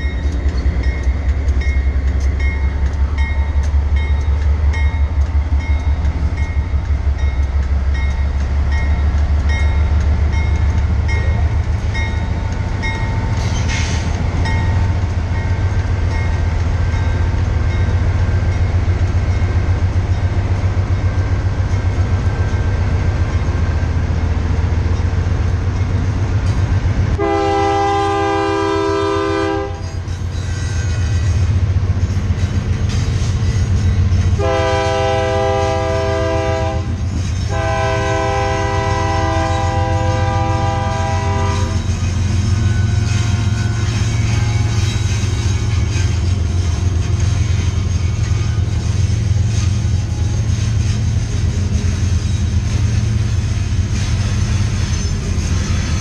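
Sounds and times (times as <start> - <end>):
diesel locomotive engine droning: 0.0 - 56.0
train wheels clicking: 0.0 - 56.0
locomotive air horn chord: 27.2 - 29.8, 34.4 - 41.8.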